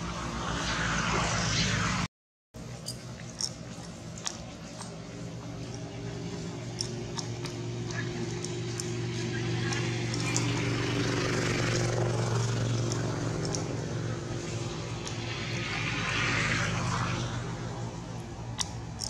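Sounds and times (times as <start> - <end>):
rushing noise: 0.0 - 2.1
engine drone: 0.0 - 19.0.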